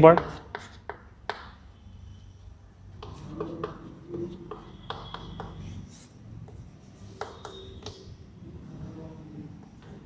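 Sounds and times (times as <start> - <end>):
chalk tapping and scratching: 0.0 - 1.6, 2.9 - 8.1
chalk squeak: 3.0 - 6.2, 7.0 - 8.1.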